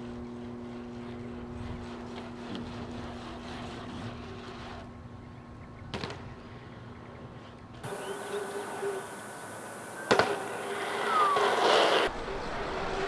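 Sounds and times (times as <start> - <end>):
mechanical hum with low rumble: 0.0 - 13.0.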